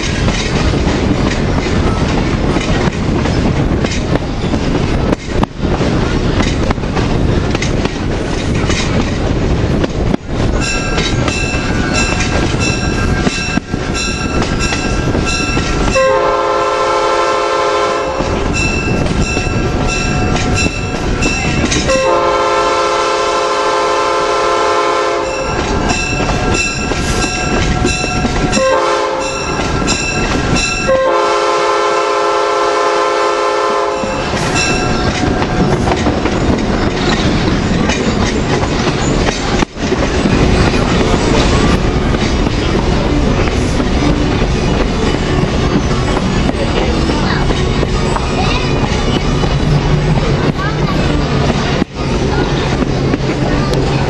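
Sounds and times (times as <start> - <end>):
train wheels clickety-clack on rails: 0.0 - 54.0
locomotive air horn blasts: 15.9 - 18.4, 21.9 - 25.6, 27.8 - 29.6, 30.9 - 34.4.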